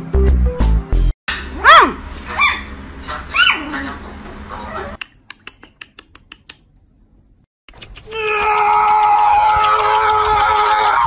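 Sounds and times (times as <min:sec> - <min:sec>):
loud high cry: 0:01.6 - 0:02.6, 0:08.1 - 0:11.0.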